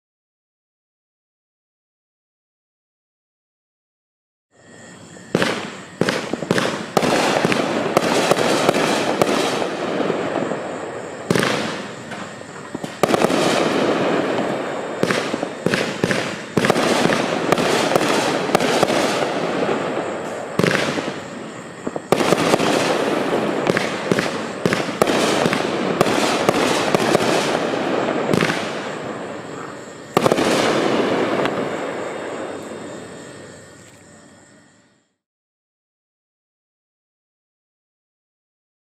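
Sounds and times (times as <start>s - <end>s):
rushing noise of burning fireworks: 4.6s - 34.6s
firework bangs: 5.2s - 33.2s.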